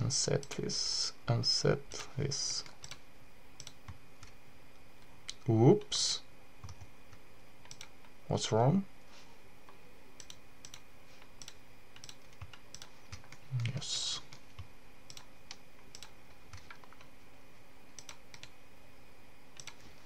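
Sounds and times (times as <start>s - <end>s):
mouse and keyboard clicks: 10.2s - 17.1s, 19.6s - 19.8s.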